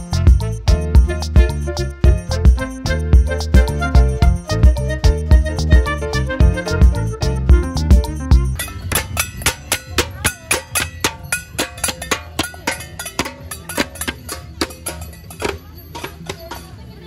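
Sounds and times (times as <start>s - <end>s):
sharp percussion strikes: 6.8s - 17.0s.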